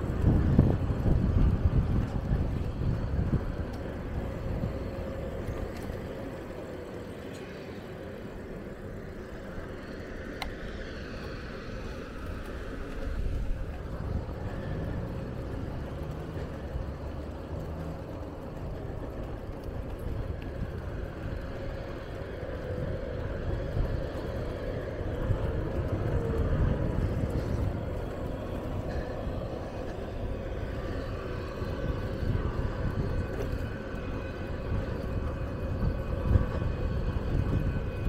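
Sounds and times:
wind on microphone: 0.0 - 7.2, 17.9 - 38.0
bicycle tyres on pavement: 0.0 - 38.0
light car traffic: 0.0 - 38.0.

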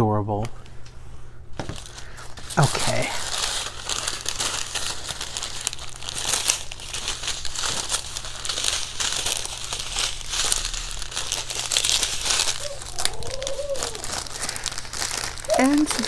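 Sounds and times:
plastic packaging crinkling: 1.6 - 16.0.

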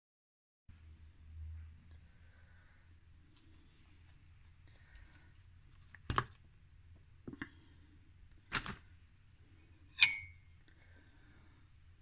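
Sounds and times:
metal spoon clinking glass jar: 10.0 - 10.4.

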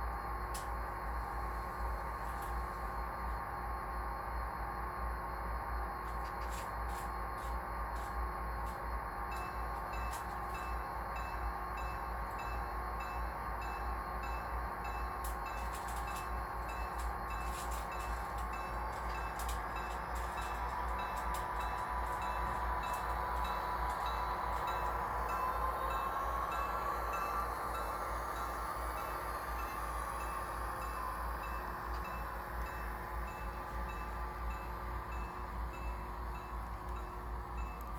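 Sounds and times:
locomotive bell ringing: 9.3 - 37.9.

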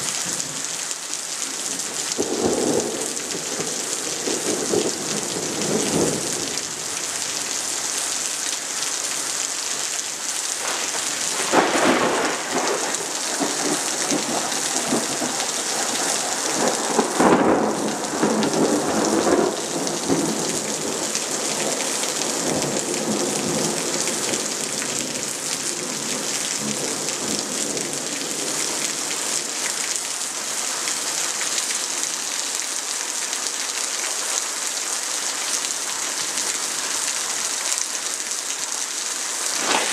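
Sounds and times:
heavy rain: 0.0 - 39.9
thunder rumbling: 10.6 - 27.3, 39.6 - 39.9.

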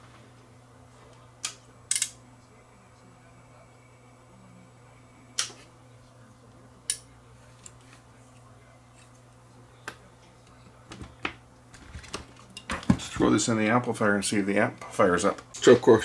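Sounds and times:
sharp clicks: 1.9 - 5.5
steady low hum: 1.9 - 5.5.

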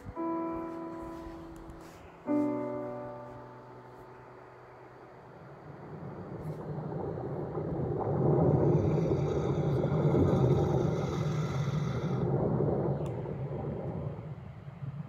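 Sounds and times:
rumbling underwater current: 5.2 - 15.0.

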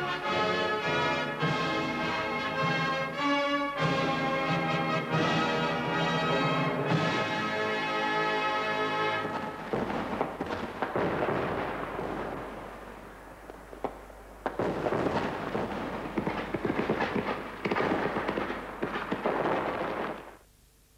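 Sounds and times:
fireworks crackling and popping: 6.9 - 20.5
firework bang: 9.2 - 20.4.

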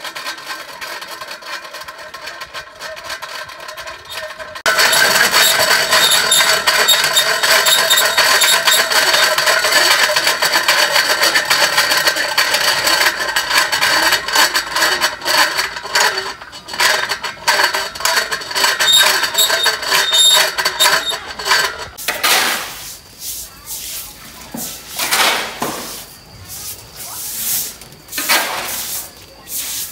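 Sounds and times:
winch ratchet clicking: 0.0 - 22.0.

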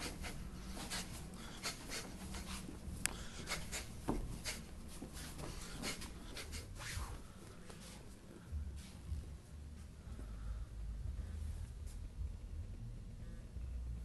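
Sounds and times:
swishing punches: 0.0 - 2.7
low hum: 0.0 - 14.0.

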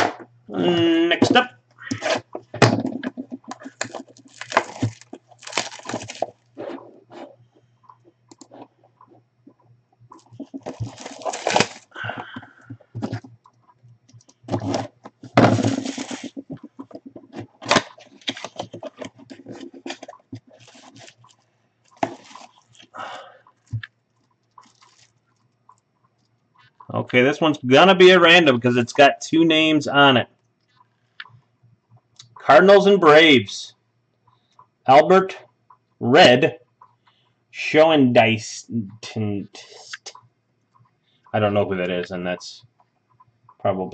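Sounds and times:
cardboard tearing and scraping: 3.7 - 7.2, 10.6 - 11.9, 14.5 - 16.5, 22.0 - 22.6.

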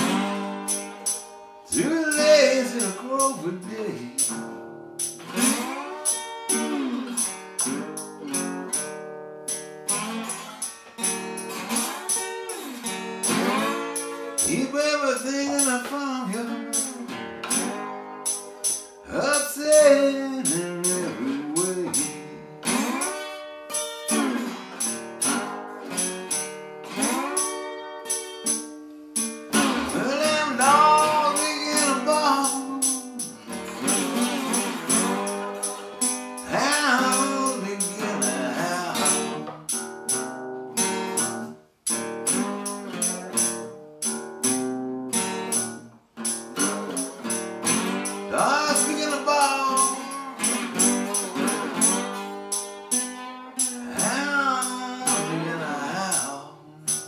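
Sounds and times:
acoustic guitar blues: 0.0 - 57.0
tambourine jingling: 0.0 - 57.0
man singing: 1.7 - 4.4, 14.4 - 17.1, 19.0 - 22.5, 29.6 - 33.5, 36.4 - 39.5, 48.3 - 50.8, 53.7 - 57.0.

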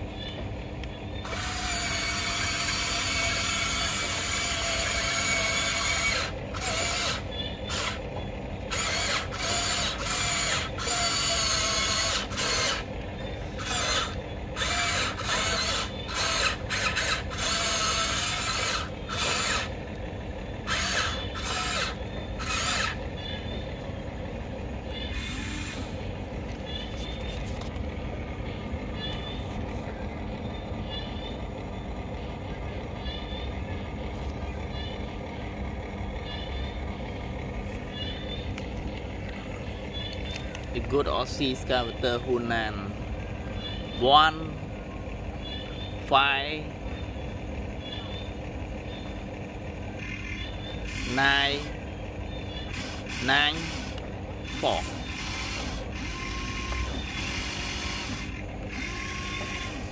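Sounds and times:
low hum: 0.0 - 59.9
toy motors and gears whirring: 1.1 - 23.8, 24.9 - 27.8, 49.9 - 59.9.

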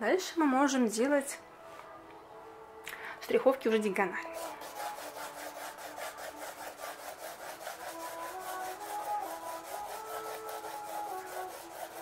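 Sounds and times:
pencil scratching on paper: 4.3 - 12.0.

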